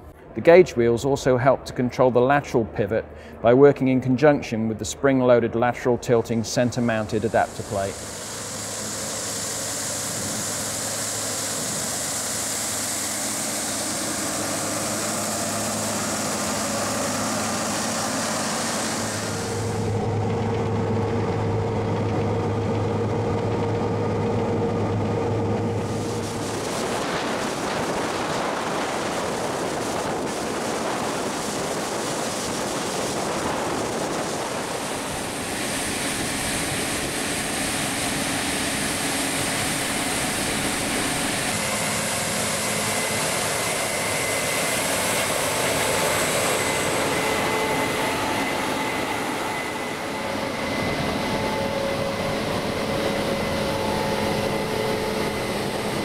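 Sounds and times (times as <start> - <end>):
high machine whine: 5.9 - 56.0
combine harvester running: 6.4 - 56.0.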